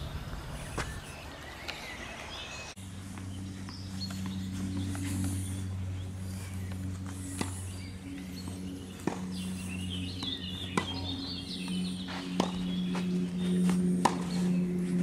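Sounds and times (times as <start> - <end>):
birds chirping: 0.0 - 15.0
steady low hum: 0.0 - 15.0
tennis ball struck by racket: 9.0 - 9.4, 10.2 - 11.0, 12.4 - 12.6, 13.6 - 14.5.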